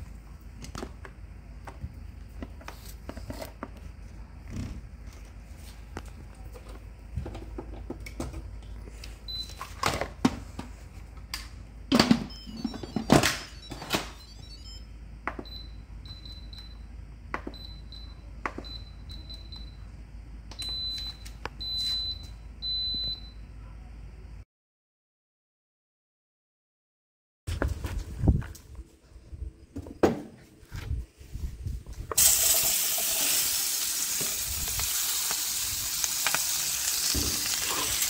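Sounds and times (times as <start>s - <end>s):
pressure cooker beeps: 9.3s - 9.6s, 12.2s - 16.8s, 17.5s - 19.8s, 20.5s - 23.4s.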